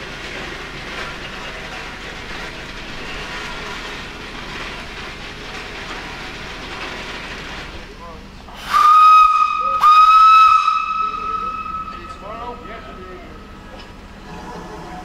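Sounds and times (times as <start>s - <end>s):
steam hissing: 0.0s - 15.0s
steam whistle blasts: 8.6s - 12.7s.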